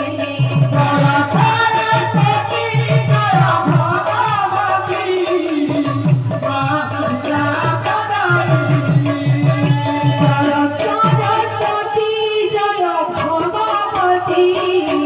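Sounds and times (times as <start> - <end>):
person singing devotional melody: 0.0 - 15.0.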